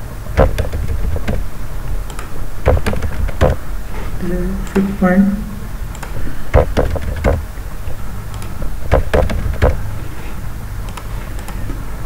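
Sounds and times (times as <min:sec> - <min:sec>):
steady low hum: 0:00.0 - 0:12.0
computer keyboard keystrokes: 0:00.4 - 0:01.4, 0:02.0 - 0:03.6, 0:05.9 - 0:07.5, 0:08.3 - 0:09.8.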